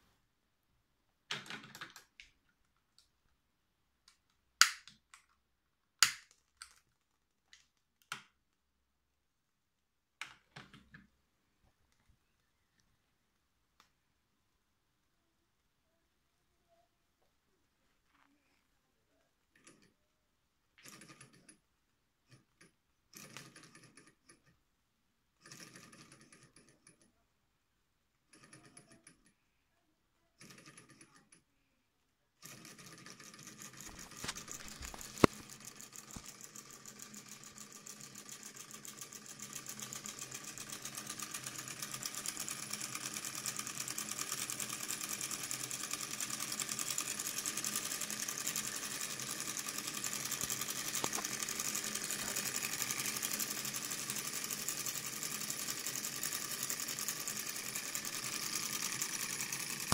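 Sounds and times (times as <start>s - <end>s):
toy hacksaw mechanical clatter: 32.4s - 59.9s.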